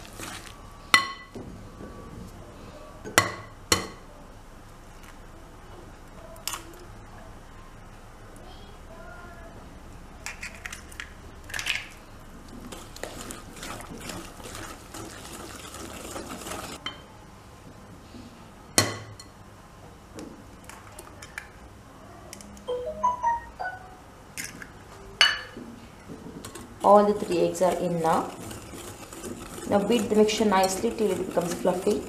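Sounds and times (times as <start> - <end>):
whisk stirring in glass bowl: 12.7 - 16.8, 26.4 - 32.0.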